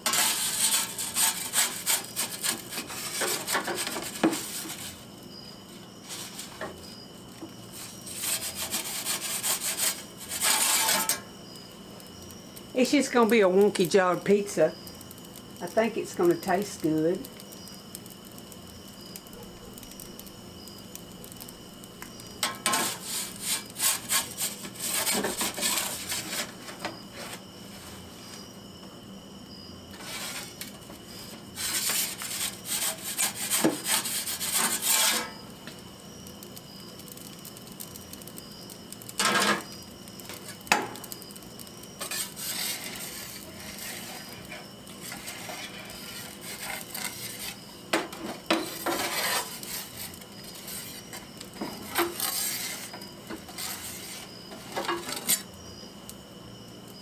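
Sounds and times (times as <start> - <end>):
metal peel scraping on stone: 0.0 - 5.0, 7.8 - 11.3, 22.2 - 27.4, 29.9 - 35.4, 42.0 - 55.5
faint steady hum: 0.0 - 57.0.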